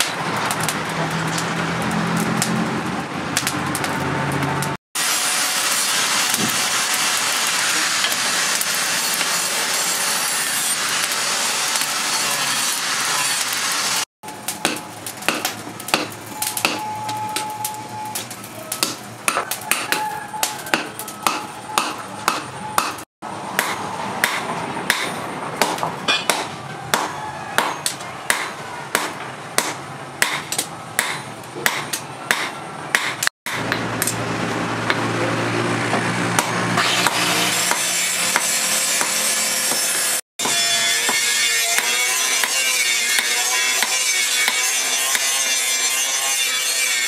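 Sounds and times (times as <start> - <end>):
hammer striking chisel on metal: 14.6 - 17.5, 18.8 - 23.0, 23.6 - 34.2, 36.4 - 47.0.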